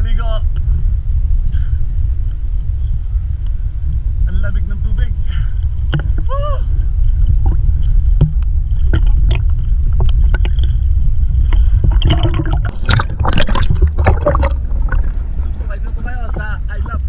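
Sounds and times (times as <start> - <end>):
low rumble of water buffeting: 0.0 - 17.0
water splashing and sloshing: 7.0 - 17.0.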